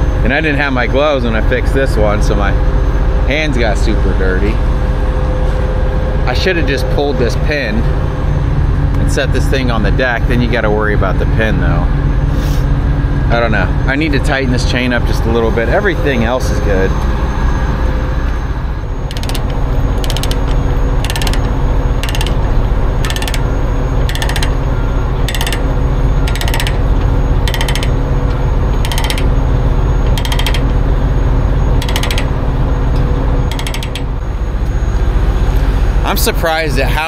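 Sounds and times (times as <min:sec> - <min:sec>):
steady low hum: 0:00.0 - 0:37.0
ratchet clicking: 0:19.1 - 0:29.4, 0:30.0 - 0:30.8, 0:31.8 - 0:32.4, 0:33.5 - 0:34.2.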